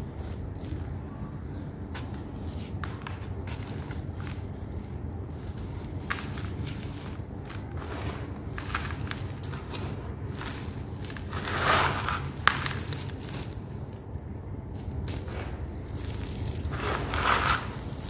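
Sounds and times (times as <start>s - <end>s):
hands crunching through gritty sand: 1.9s - 18.0s
sand pouring from hands: 5.3s - 14.0s, 14.8s - 18.0s.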